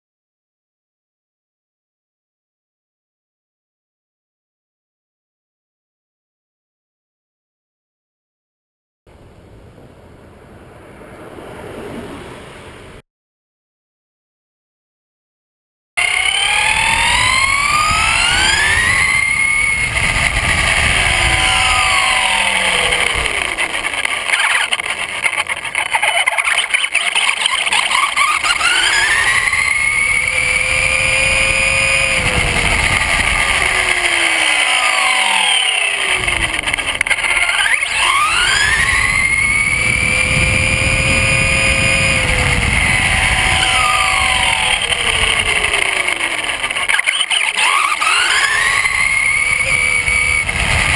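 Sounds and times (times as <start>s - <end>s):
tyres rumbling on asphalt: 9.1s - 13.0s, 16.0s - 50.9s
electric motor whining: 16.0s - 50.9s.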